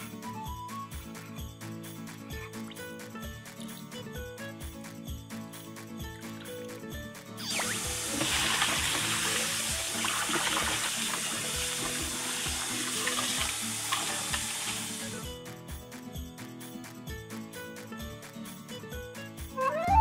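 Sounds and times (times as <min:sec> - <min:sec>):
background music with steady beat: 0:00.0 - 0:20.0
hands rinsing meat: 0:07.5 - 0:15.2
tap water splashing into bowl: 0:07.8 - 0:15.2.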